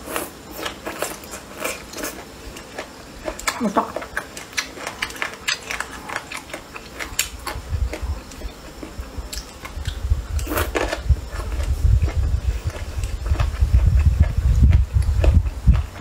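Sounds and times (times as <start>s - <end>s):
biting and chewing: 0.0s - 16.0s
low rumble: 9.0s - 16.0s.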